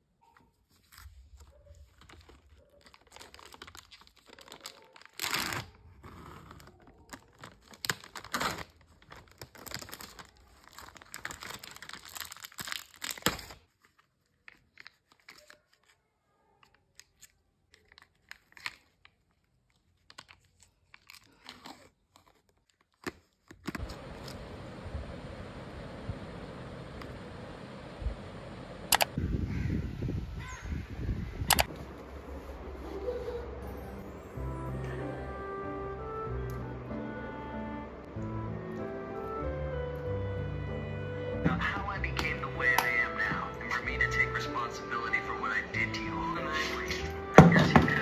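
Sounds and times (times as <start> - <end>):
plastic packaging ripping: 0.7 - 16.0, 16.9 - 24.4.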